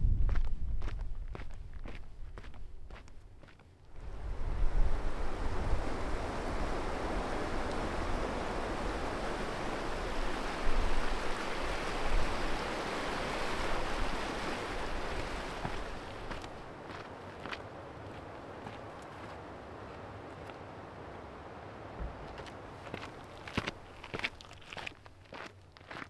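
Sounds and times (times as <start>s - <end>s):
wind buffeting microphone: 0.0s - 3.0s, 4.0s - 18.8s.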